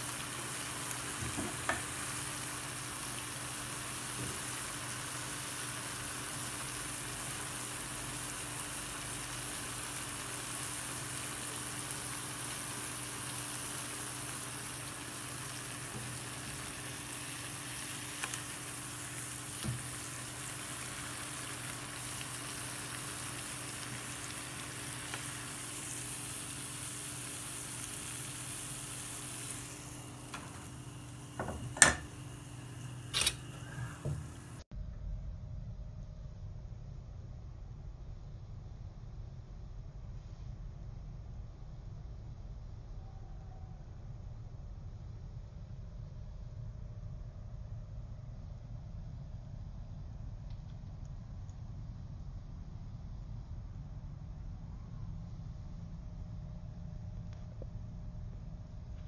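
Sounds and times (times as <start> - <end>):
batter sizzling in hot oil: 0.0 - 34.6
skillet knocking on grate: 31.4 - 32.1.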